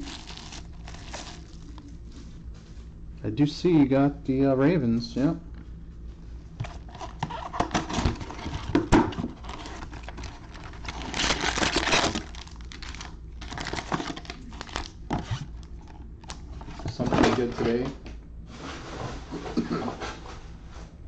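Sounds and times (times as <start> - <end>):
plastic wrapper crinkling: 0.0 - 2.0, 6.6 - 17.4
rustling slide: 18.5 - 20.9.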